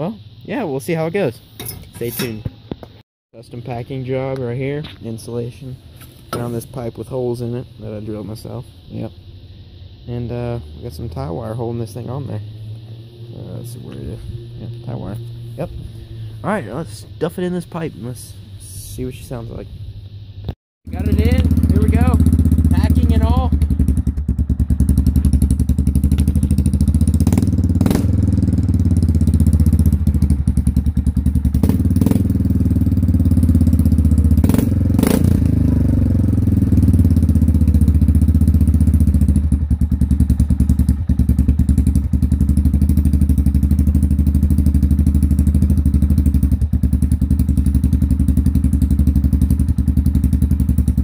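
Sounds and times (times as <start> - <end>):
atv engine idling and revving: 9.8 - 18.4, 20.9 - 51.0.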